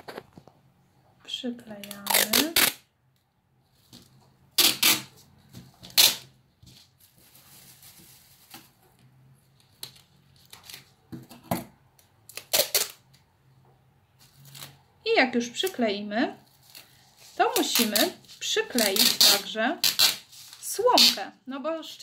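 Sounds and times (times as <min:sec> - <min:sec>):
tape ripping off roll: 0:04.6 - 0:05.2, 0:05.8 - 0:06.4, 0:12.3 - 0:13.0, 0:18.8 - 0:21.2
plastic foil crackling and rustling: 0:04.6 - 0:11.0, 0:14.2 - 0:14.8, 0:16.4 - 0:20.7.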